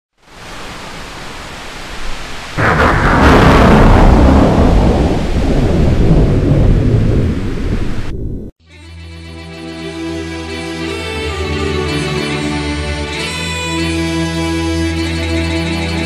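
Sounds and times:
rain hiss: 0:00.2 - 0:08.2
thunderclap rumbling: 0:02.5 - 0:08.5.

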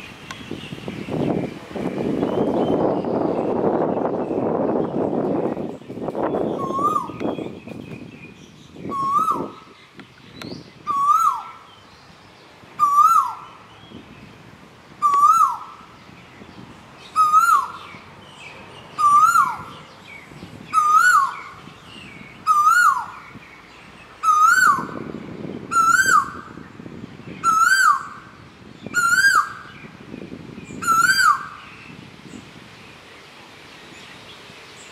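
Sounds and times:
koel whistling calls: 0:06.6 - 0:07.2, 0:08.9 - 0:09.7, 0:12.8 - 0:13.4, 0:15.0 - 0:15.8, 0:19.0 - 0:19.8, 0:20.7 - 0:21.6, 0:22.4 - 0:23.2, 0:24.2 - 0:25.0, 0:25.7 - 0:26.4, 0:27.4 - 0:28.2, 0:28.9 - 0:29.7, 0:30.8 - 0:31.6.

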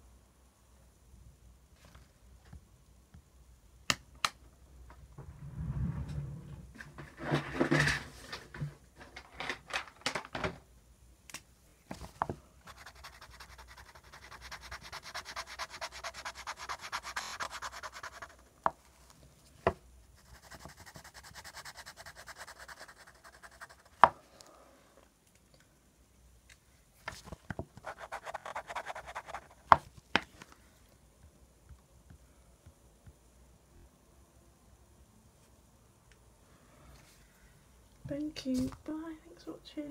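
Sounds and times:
pen scribbling on paper: 0:12.7 - 0:18.4, 0:20.2 - 0:24.0, 0:27.8 - 0:29.6.

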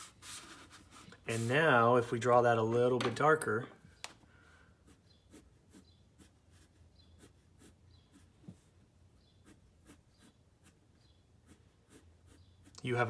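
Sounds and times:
pencil scratching on paper: 0:00.0 - 0:02.1, 0:04.8 - 0:08.7, 0:09.3 - 0:12.8.

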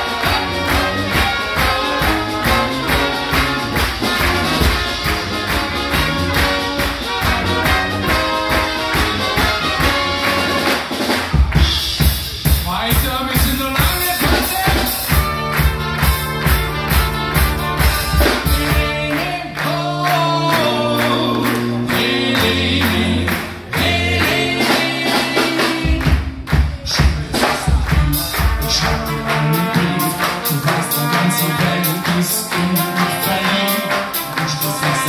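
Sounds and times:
brass band playing: 0:00.0 - 0:35.0
crowd clapping along: 0:00.0 - 0:35.0
person singing into microphone: 0:27.9 - 0:35.0.

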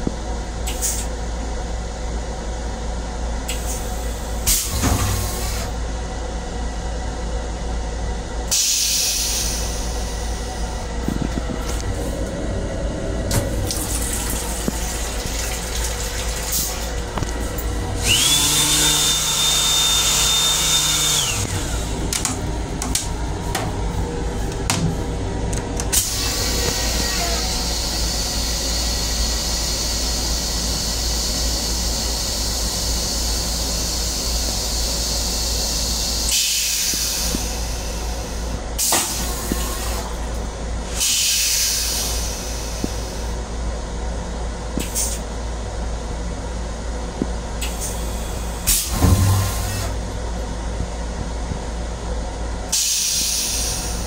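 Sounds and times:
toilet flushing: 0:12.2 - 0:22.0, 0:47.6 - 0:50.3
high whine: 0:48.6 - 0:52.4.

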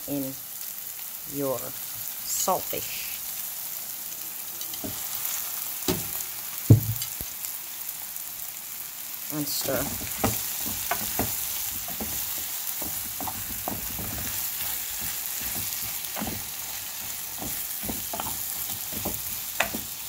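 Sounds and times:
fish sizzling in a frying pan: 0:00.0 - 0:20.0
wooden spoon scraping a pan: 0:09.5 - 0:20.0.

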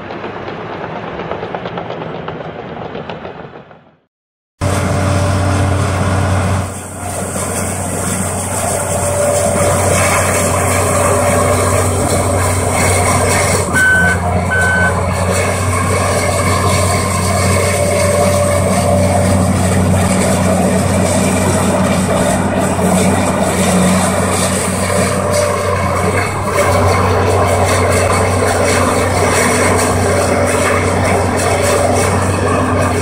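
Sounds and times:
excavator diesel engine running: 0:04.6 - 0:33.0
short electronic beeps: 0:13.7 - 0:15.0.

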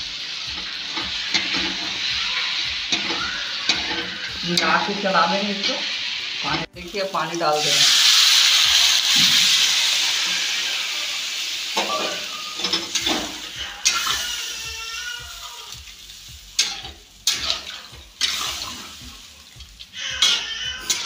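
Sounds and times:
water sizzling in hot pan: 0:00.0 - 0:21.0
metal spatula scraping pan: 0:00.6 - 0:02.0, 0:02.9 - 0:05.8, 0:16.6 - 0:19.0, 0:20.2 - 0:21.0.

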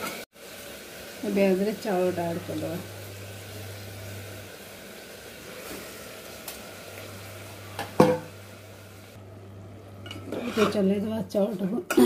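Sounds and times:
food sizzling in ghee: 0:00.0 - 0:11.8.

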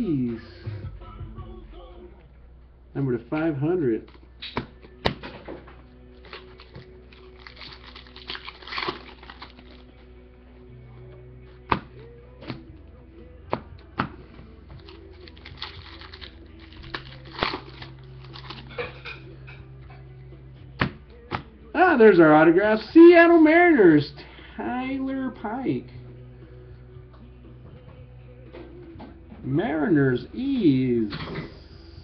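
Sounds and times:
faint steady hum: 0:00.0 - 0:23.0
cards tapping and slapping: 0:04.1 - 0:05.6, 0:11.7 - 0:12.6, 0:14.8 - 0:18.7, 0:20.8 - 0:21.5.

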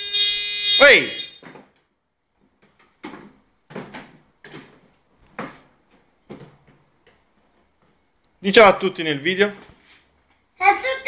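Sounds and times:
plastic toy car bumps and rattles: 0:02.6 - 0:04.8.

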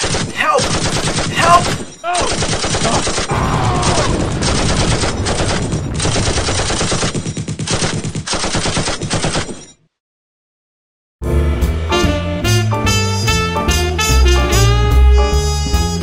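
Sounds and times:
automatic machine-gun fire: 0:00.0 - 0:09.6.

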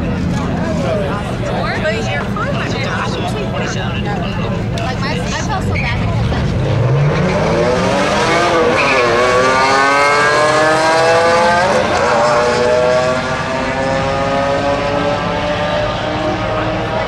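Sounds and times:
engines revving hard: 0:05.0 - 0:17.0.

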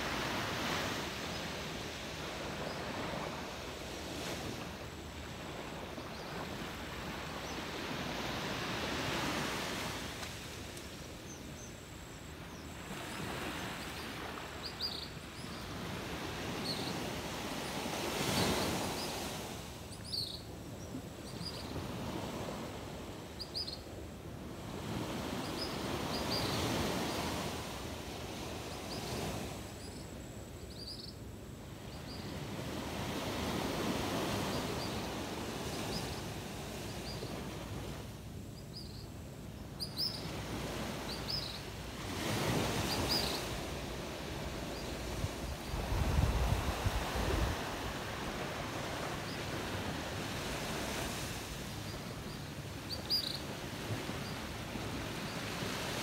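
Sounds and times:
sea surf washing onto beach: 0:00.0 - 0:11.6, 0:40.3 - 0:56.0.

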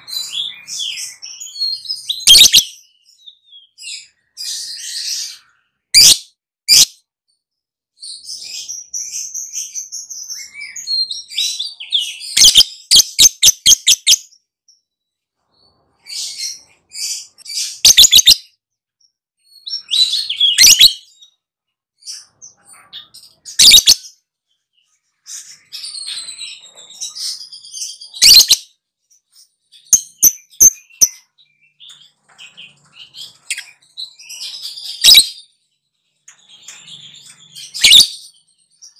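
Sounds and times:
bird chirping and clicking: 0:01.9 - 0:02.8, 0:12.3 - 0:14.2, 0:17.8 - 0:18.4, 0:19.9 - 0:21.0, 0:23.1 - 0:24.0, 0:28.2 - 0:28.6, 0:29.8 - 0:35.4, 0:36.2 - 0:38.5.

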